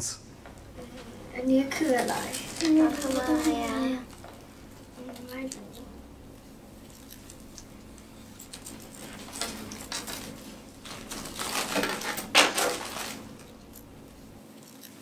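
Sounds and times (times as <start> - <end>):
plastic bag crinkling: 1.7 - 4.4, 8.5 - 13.7.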